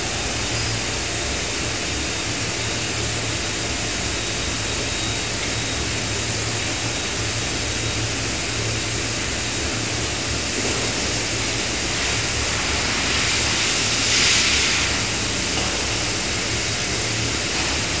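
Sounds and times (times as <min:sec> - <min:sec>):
hydraulic power unit hum and hiss: 0:00.0 - 0:18.0
loud hiss: 0:11.3 - 0:15.4.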